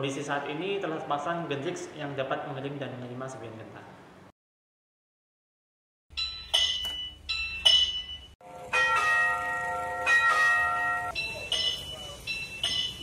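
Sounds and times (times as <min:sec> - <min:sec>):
electronic signal bell ringing: 0:06.1 - 0:13.0.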